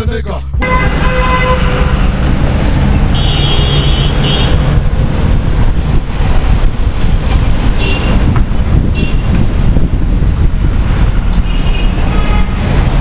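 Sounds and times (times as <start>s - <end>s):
moped road noise: 0.0s - 13.0s
wind on microphone: 4.2s - 13.0s.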